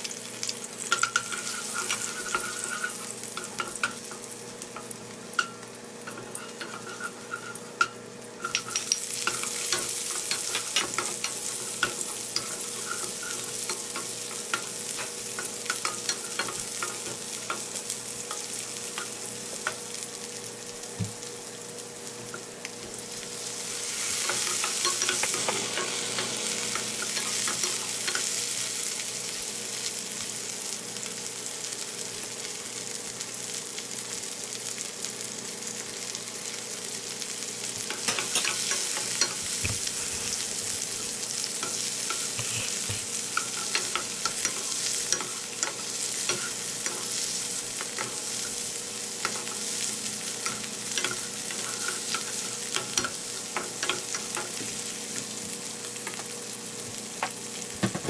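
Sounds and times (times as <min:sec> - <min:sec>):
chicken sizzling in hot oil: 0:00.0 - 0:58.0
wooden spatula scraping and tapping: 0:42.1 - 0:44.6.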